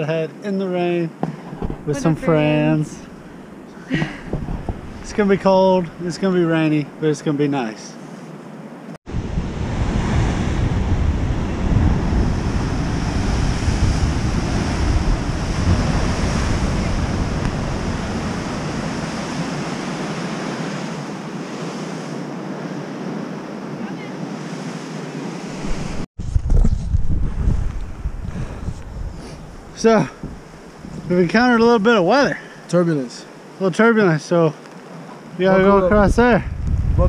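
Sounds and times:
ocean surf breaking: 0.7 - 26.1, 27.8 - 36.2
wind buffeting microphone: 1.2 - 6.0, 9.1 - 21.8, 25.2 - 32.0, 35.4 - 37.0.

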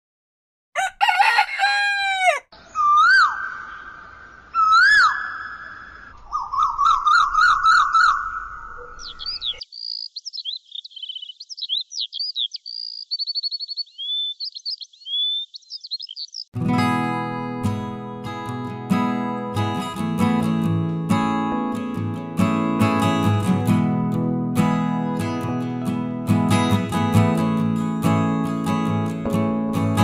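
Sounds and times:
rooster crowing: 0.8 - 2.5
songbirds twittering: 2.6 - 16.6.

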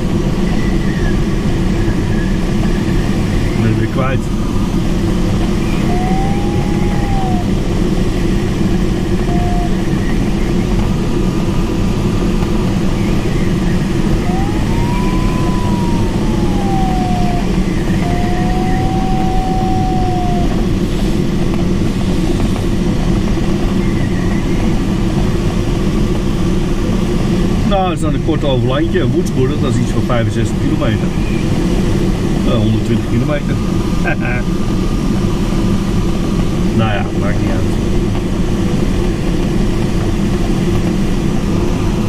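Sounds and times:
variometer tone sliding in pitch: 9.2 - 10.0, 14.1 - 20.7.

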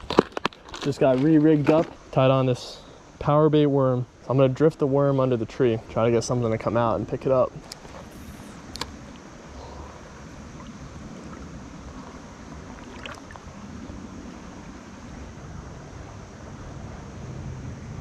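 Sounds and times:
stream current rushing: 1.5 - 18.0
faint click: 8.7 - 9.3.

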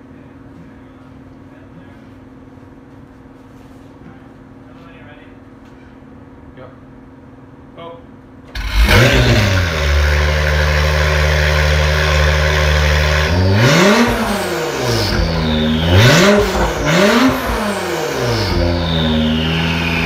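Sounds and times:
car engine idling: 8.5 - 20.0
car engine revving: 8.5 - 20.0
car engine starting: 8.5 - 20.0.

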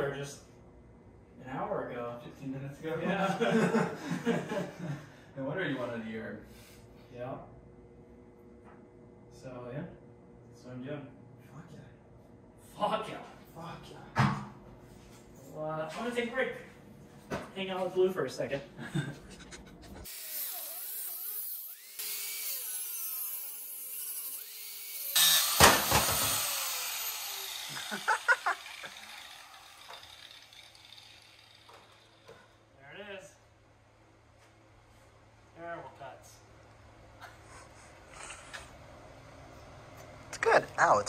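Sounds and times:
angle grinder cutting steel: 20.0 - 32.3.

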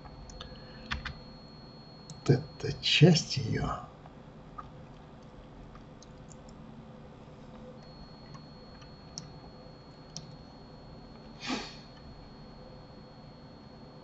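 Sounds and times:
computer mouse clicks: 10.1 - 10.4
short puff of noise: 11.4 - 11.9.

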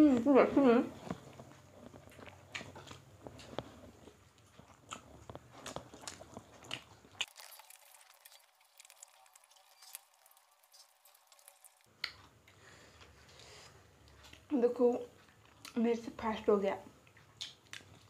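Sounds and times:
people eating by hand: 0.0 - 18.0.

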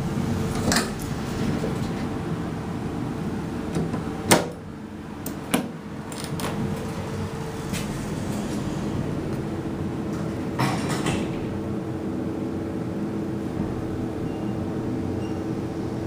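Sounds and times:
elevator steady hum: 0.0 - 16.0
elevator doors closing knock: 7.6 - 11.7.

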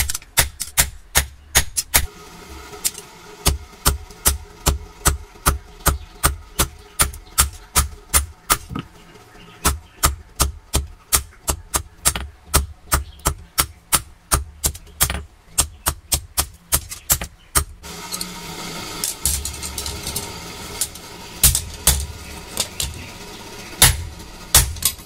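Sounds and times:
steady rushing noise: 17.8 - 25.0
hammer striking hot steel on anvil: 19.0 - 23.1, 23.8 - 25.0.

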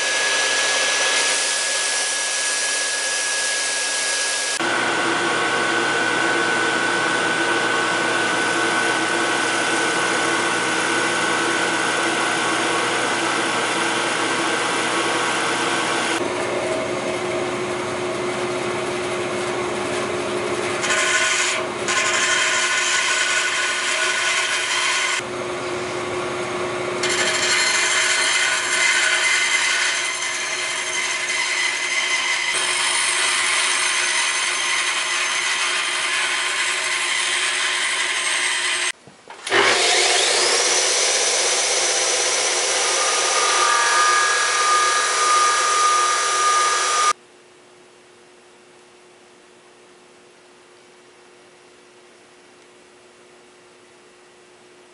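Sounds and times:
bandsaw cutting: 0.0 - 16.2, 20.8 - 25.2, 27.0 - 47.2
milling machine cutting wood: 0.0 - 16.2, 27.0 - 47.2
disc sander running: 0.0 - 17.6, 18.6 - 47.2.

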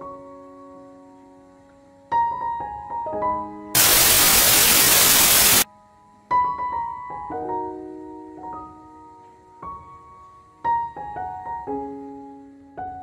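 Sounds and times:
loud static hiss: 3.8 - 5.7
slow piano music: 5.9 - 13.0.

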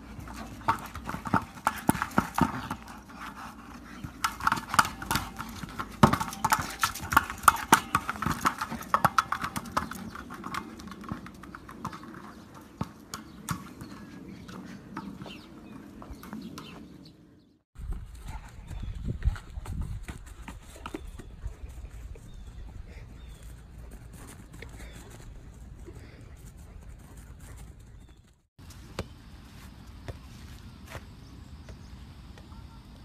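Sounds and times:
dog scuffling with ball on grass: 0.0 - 16.9.

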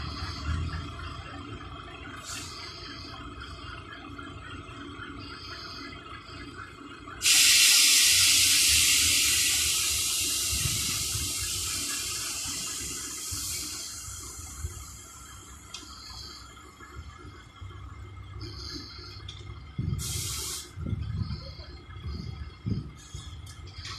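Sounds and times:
low rumble: 0.0 - 5.8, 16.0 - 23.9
air venting hiss: 7.2 - 16.4, 19.8 - 21.6.

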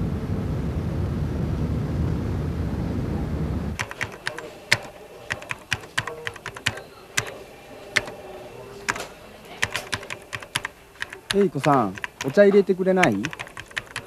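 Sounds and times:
keyboard typing clicks: 3.8 - 14.0.

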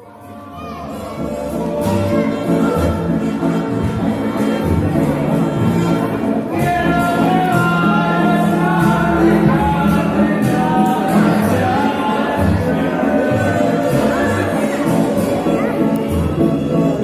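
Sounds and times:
bass line: 0.0 - 17.0
live band playing: 0.0 - 17.0
person singing: 0.0 - 17.0.

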